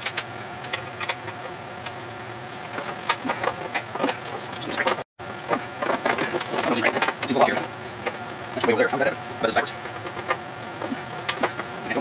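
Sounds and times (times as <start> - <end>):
metal parts clicking and tapping: 5.8 - 12.0.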